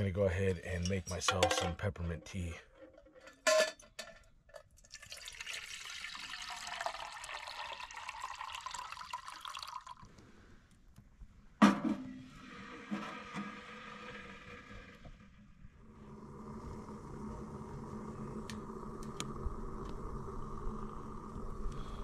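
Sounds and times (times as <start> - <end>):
water pouring into metal cup: 4.8 - 10.1.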